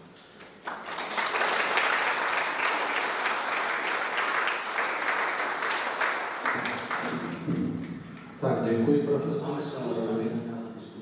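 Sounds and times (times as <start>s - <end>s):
audience applauding: 0.4s - 8.4s.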